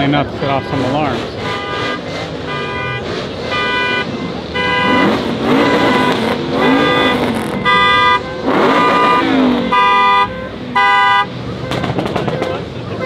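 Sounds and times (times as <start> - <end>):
car alarm: 2.5 - 12.6.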